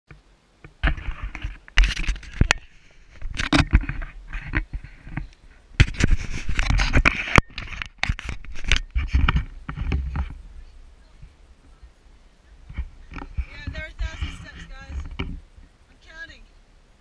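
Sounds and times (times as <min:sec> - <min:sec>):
camera handling noise: 0:00.8 - 0:10.4
wind rumble on microphone: 0:00.8 - 0:17.0
footsteps on stone steps: 0:12.6 - 0:15.8.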